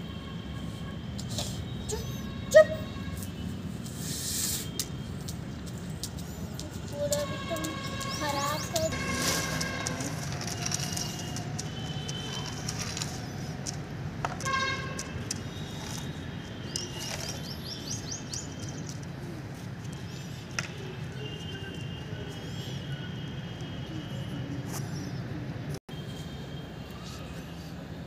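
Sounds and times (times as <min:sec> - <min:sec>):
small birds chirping: 0:15.5 - 0:19.1.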